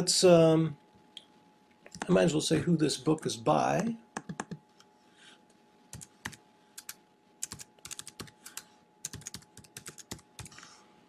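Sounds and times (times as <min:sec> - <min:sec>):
typing on a computer keyboard: 0:04.2 - 0:04.6, 0:05.9 - 0:10.6.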